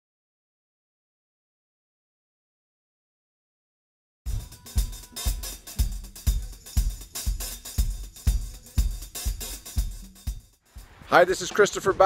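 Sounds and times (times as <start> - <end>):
bass drum: 4.3 - 11.2
drum kit beat: 4.3 - 12.0
hi-hat and cymbal hits: 4.3 - 12.0.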